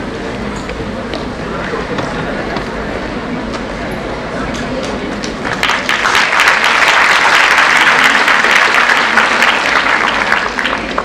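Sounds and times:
crowd applauding: 0:04.8 - 0:11.0.

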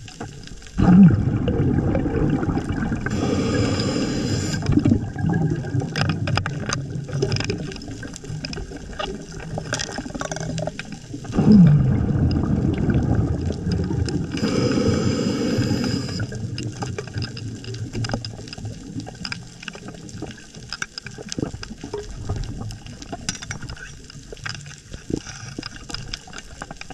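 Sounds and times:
underwater breath bubbles: 0:00.8 - 0:06.0, 0:11.3 - 0:16.8.

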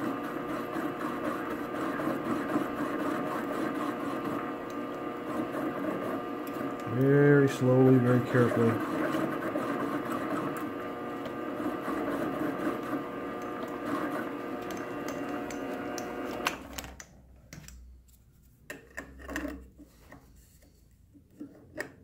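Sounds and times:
metal lathe motor whine: 0:00.0 - 0:16.7
lathe stopping with a click: 0:14.6 - 0:16.7.

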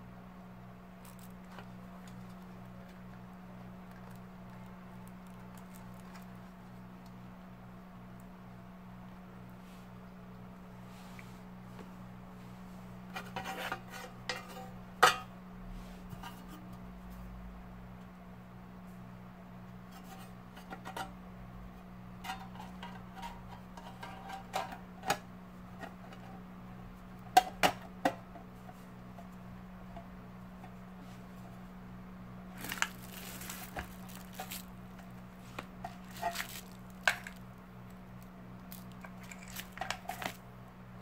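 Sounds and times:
scraping rustle of wires: 0:03.8 - 0:06.5, 0:32.5 - 0:40.4.

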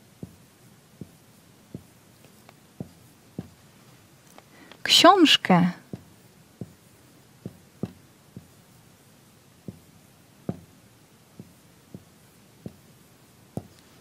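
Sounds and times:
soft knocks and taps: 0:00.2 - 0:03.6, 0:05.9 - 0:06.8, 0:07.4 - 0:08.6, 0:09.6 - 0:09.9, 0:10.5 - 0:10.7, 0:11.4 - 0:12.9, 0:13.6 - 0:14.0.

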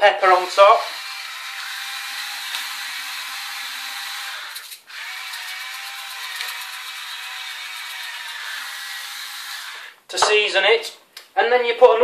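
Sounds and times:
salt and pepper mills grinding: 0:01.0 - 0:09.3.

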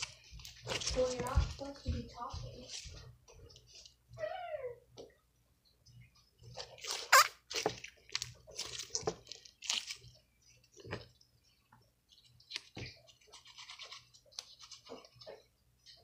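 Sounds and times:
slime squishing and crackling: 0:00.0 - 0:02.9, 0:06.6 - 0:11.1.

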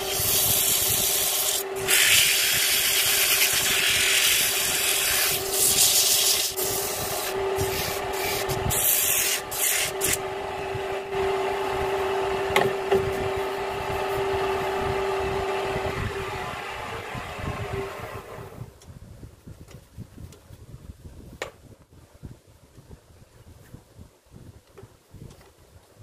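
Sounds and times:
sandpaper rubbing on wood: 0:00.0 - 0:10.2
lathe humming: 0:00.0 - 0:18.6.

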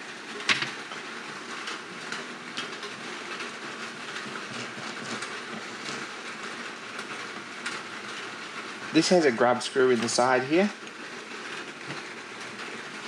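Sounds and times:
steady background hiss: 0:05.3 - 0:11.4.

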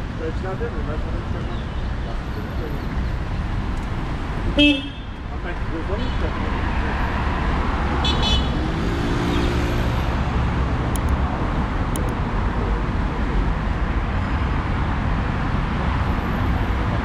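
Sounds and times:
city street traffic: 0:00.0 - 0:17.0
engine or horn tone: 0:04.6 - 0:05.2.

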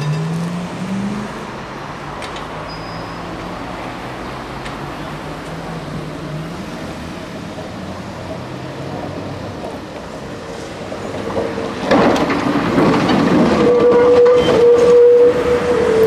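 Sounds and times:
tram running on track: 0:00.0 - 0:16.0
wheels rattling on rail: 0:07.6 - 0:16.0.

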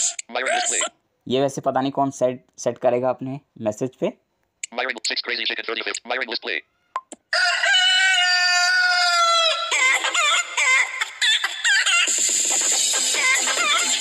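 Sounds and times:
chicken crow-like call: 0:06.8 - 0:09.7.

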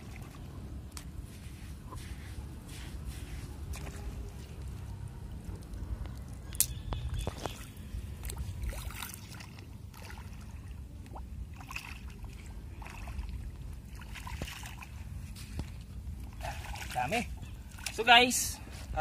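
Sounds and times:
steady low rumble: 0:00.0 - 0:16.5
footsteps splashing in shallow water: 0:07.2 - 0:18.1.

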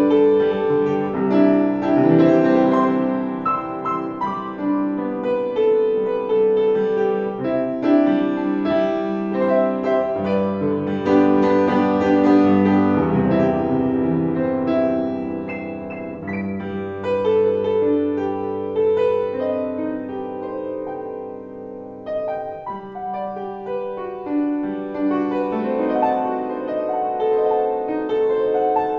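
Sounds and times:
upright piano melody: 0:00.0 - 0:28.9.

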